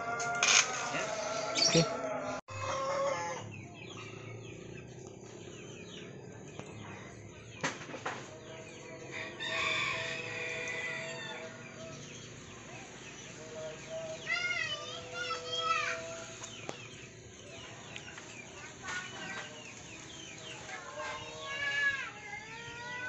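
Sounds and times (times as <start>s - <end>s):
rooster crowing: 0.0s - 3.6s, 9.0s - 12.0s
small birds chirping: 2.6s - 23.0s.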